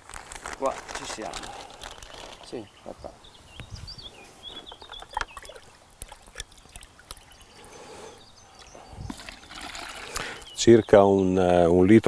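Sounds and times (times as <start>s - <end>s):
water pouring into plastic bucket: 9.1s - 10.4s.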